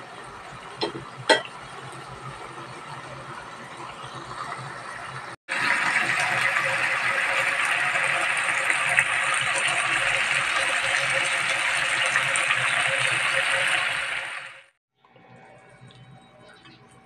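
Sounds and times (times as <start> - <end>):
chicken sizzling and crackling: 4.0 - 14.8
sauce simmering in frying pan: 4.0 - 14.8.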